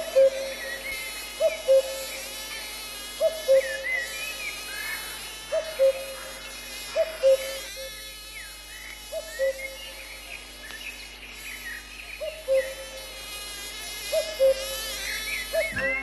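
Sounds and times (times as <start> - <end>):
synthesized drone: 14.1 - 16.0.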